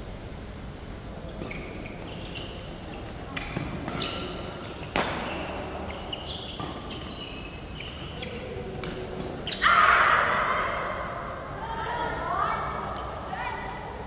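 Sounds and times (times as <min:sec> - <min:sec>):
court shoes squeaking: 0:01.3 - 0:09.7
racket striking shuttlecock: 0:04.9 - 0:05.4.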